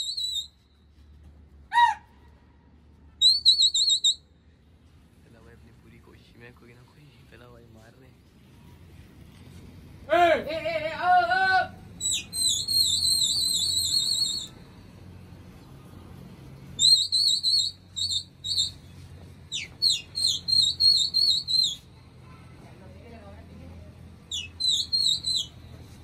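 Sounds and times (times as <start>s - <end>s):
shrill warbling whistles: 0.0s - 0.8s, 3.2s - 4.2s, 12.0s - 14.6s, 16.8s - 21.9s, 24.3s - 25.7s.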